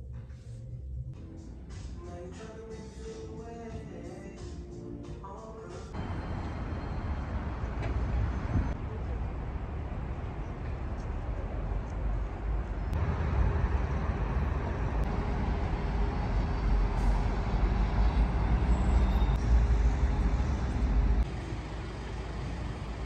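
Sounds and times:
traffic rumble of buses and cars: 5.4 - 23.0.

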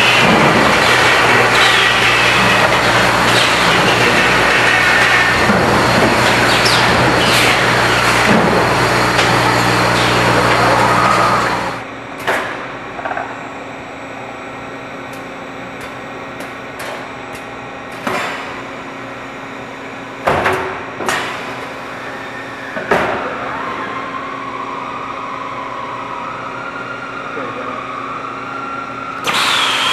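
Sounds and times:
steady whine: 0.0 - 20.2
machinery humming: 0.0 - 29.9.

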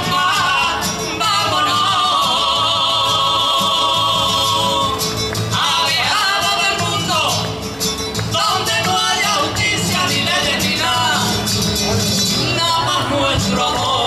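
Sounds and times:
women's choir singing: 0.0 - 7.2
acoustic guitar: 0.0 - 14.0
hand-clapping: 5.1 - 10.0.

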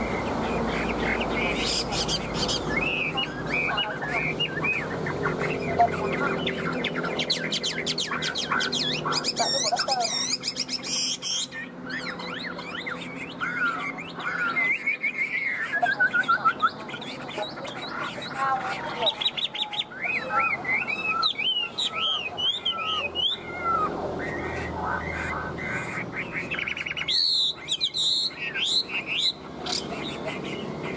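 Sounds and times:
bird singing whistled phrases: 1.4 - 17.1, 19.1 - 24.5.

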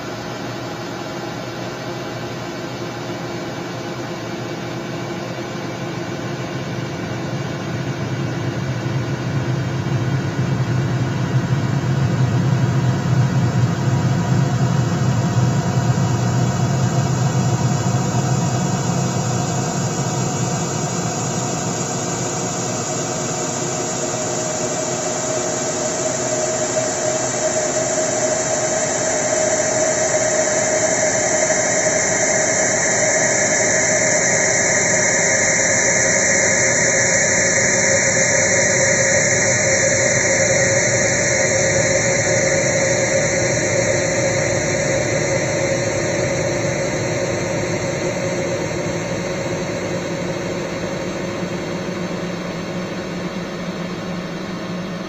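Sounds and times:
engine-like mechanical drone: 8.5 - 55.0
high tone and hiss: 13.4 - 55.0.

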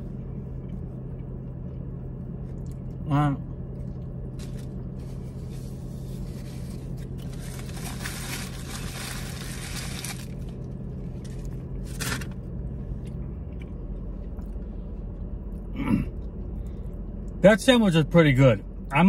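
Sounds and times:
low hum in car cabin: 0.0 - 19.0
foil wrapper crinkling: 4.4 - 12.3.

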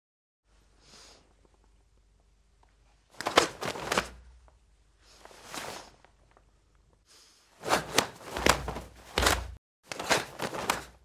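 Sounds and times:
cloth snapping cracks: 3.2 - 4.2, 7.7 - 11.0
dull thud of steps: 7.7 - 11.0.

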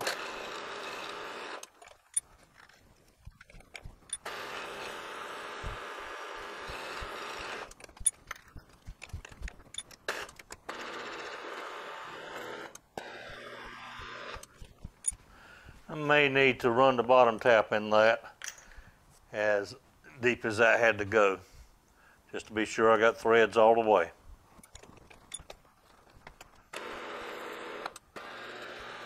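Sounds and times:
scattered clicks: 1.6 - 5.0, 5.6 - 11.6
milling machine spindle drilling: 4.0 - 8.1, 10.7 - 15.2, 26.7 - 29.0.

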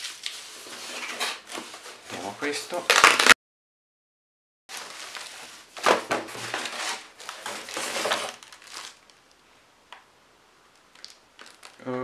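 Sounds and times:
plastic bag crinkling: 2.7 - 3.4, 4.7 - 9.4, 10.9 - 12.0.

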